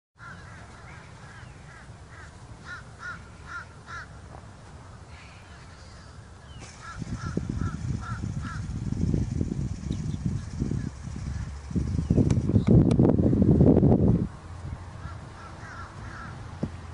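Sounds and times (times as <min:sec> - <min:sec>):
crow cawing: 0:00.2 - 0:04.1, 0:06.7 - 0:08.7, 0:15.0 - 0:16.4.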